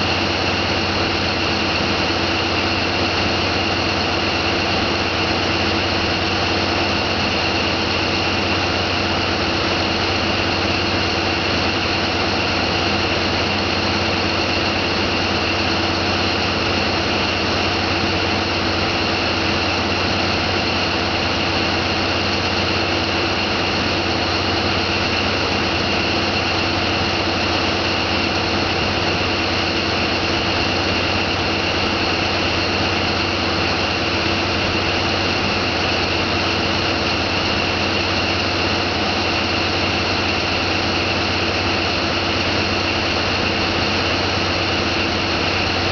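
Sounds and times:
boat engine droning: 0.0s - 45.9s.

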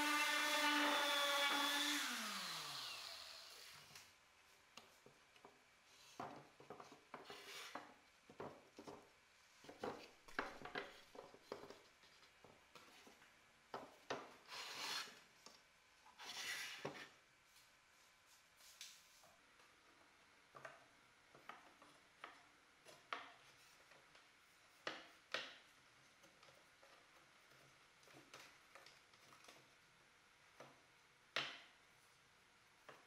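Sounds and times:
sander humming: 0.0s - 3.7s.

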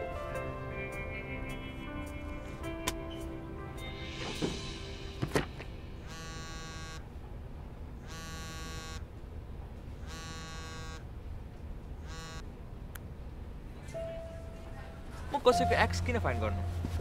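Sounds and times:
sharp knocks: 4.2s - 5.8s
smartphone vibrating on table: 6.0s - 7.0s, 8.1s - 9.1s, 10.0s - 11.0s, 12.0s - 12.4s.

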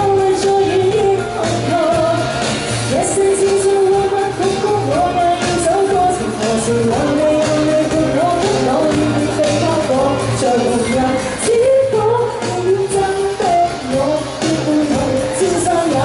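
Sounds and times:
pop backing track with beat: 0.0s - 16.0s
woman singing into microphone: 0.0s - 16.0s.

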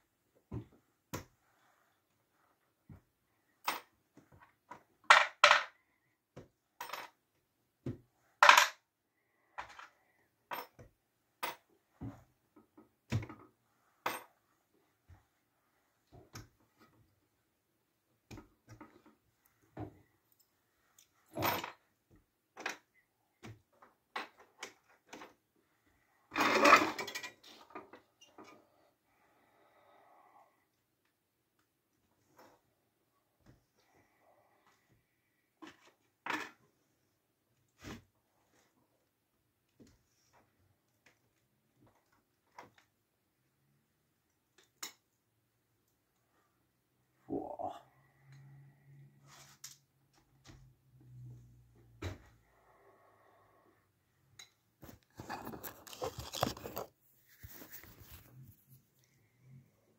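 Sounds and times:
scraping and rustling: 54.8s - 59.1s.

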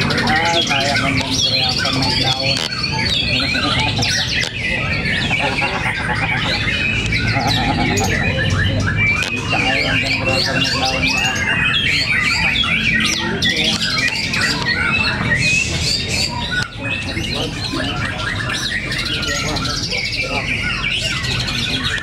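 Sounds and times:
birds singing: 0.0s - 22.0s.

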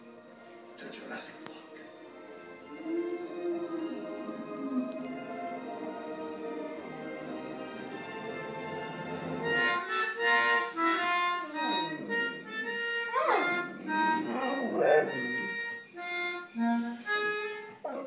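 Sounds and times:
melodica melody: 0.0s - 17.9s
dog howling: 2.7s - 6.3s, 11.4s - 15.7s.

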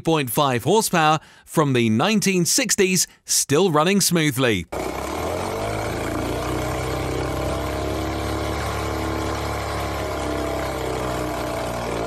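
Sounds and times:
outboard motor running: 4.7s - 12.0s.

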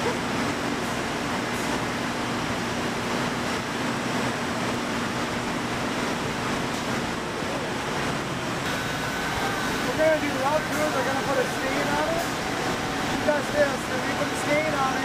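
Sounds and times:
factory machinery din: 0.0s - 15.0s
thin high whine: 8.6s - 15.0s.

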